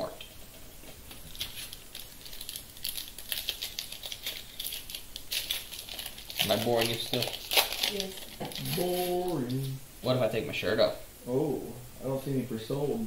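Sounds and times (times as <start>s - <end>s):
plastic wrapper crinkling: 0.8s - 9.7s
trading cards rustling: 0.8s - 9.7s.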